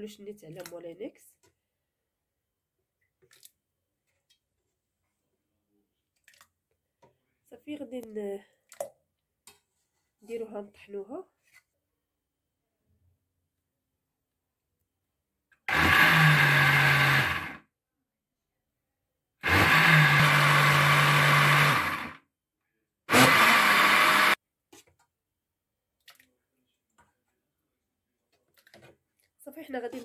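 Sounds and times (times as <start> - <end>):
blender motor pulsing: 15.7 - 17.6, 19.4 - 22.2, 23.1 - 24.4.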